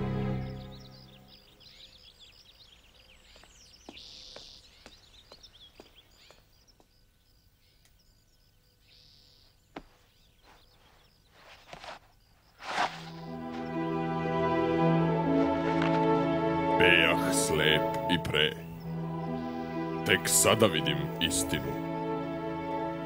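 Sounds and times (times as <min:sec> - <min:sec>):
faint birds chirping: 0:00.0 - 0:23.0.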